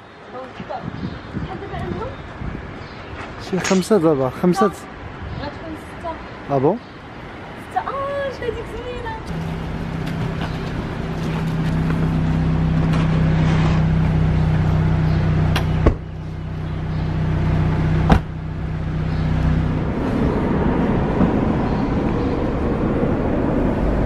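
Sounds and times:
car engine humming: 7.5 - 24.0.

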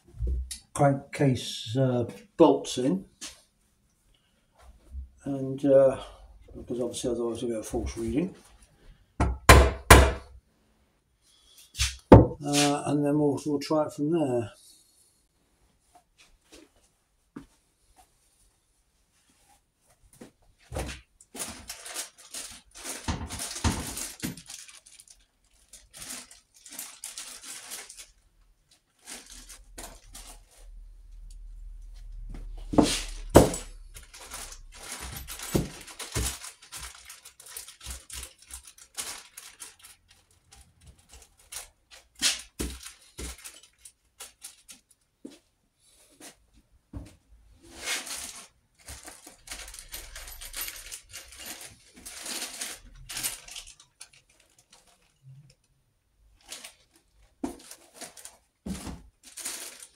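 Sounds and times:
plastic bags rustling: 20.6 - 45.2, 47.6 - 55.5, 56.2 - 59.9
small metal parts clinking: 49.2 - 55.2.

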